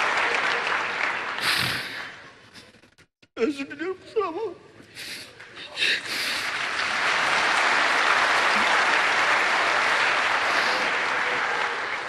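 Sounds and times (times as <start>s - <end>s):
large audience applauding: 0.0s - 2.4s, 5.4s - 12.0s.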